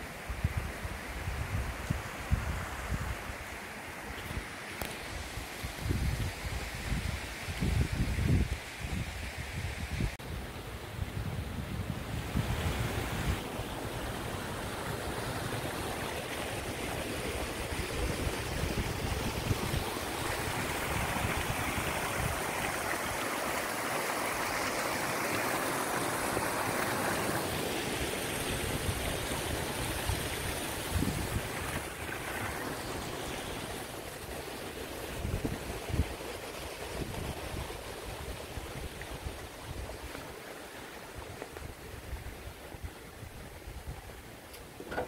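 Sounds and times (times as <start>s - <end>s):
stream trickling over stones: 14.2s - 45.0s
wind buffeting microphone: 28.5s - 33.7s, 35.0s - 40.2s.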